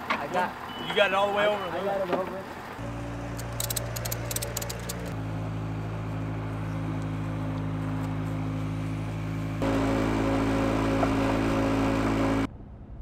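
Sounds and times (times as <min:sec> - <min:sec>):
ratchet strap clicking: 0:03.3 - 0:05.2.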